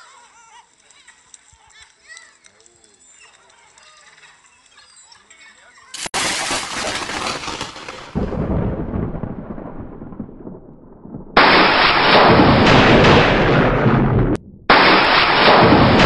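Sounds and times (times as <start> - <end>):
heavy rain: 6.0 - 13.8
thunder crack: 6.2 - 16.0
low thunder rumble: 8.0 - 16.0.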